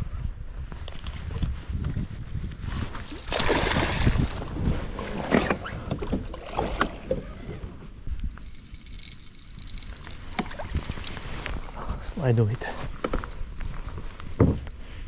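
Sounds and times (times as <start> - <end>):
water splashing around a boat: 2.8 - 7.6.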